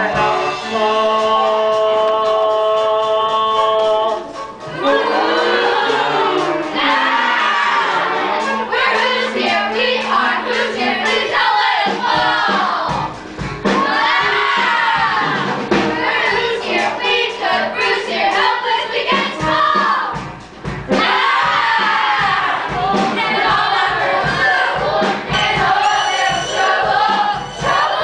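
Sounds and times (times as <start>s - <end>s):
children's choir singing: 0.0s - 20.3s, 20.9s - 28.0s
musical accompaniment: 0.0s - 28.0s.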